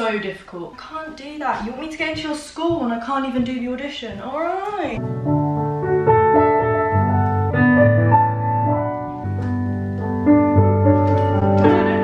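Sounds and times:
slow piano accompaniment: 5.0 - 12.0.

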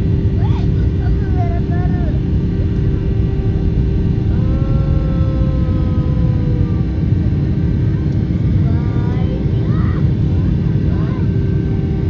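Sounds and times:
jet engines roaring: 0.0 - 12.0
higher drawn-out tone: 2.0 - 7.8.

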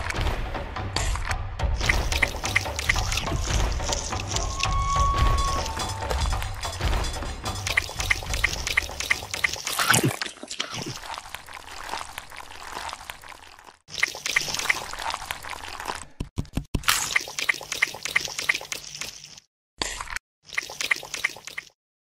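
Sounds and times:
small wet clicks: 1.8 - 4.5, 7.5 - 16.3, 16.9 - 21.8
water trickling and splashing: 1.8 - 16.0, 16.9 - 19.5, 20.4 - 21.8.

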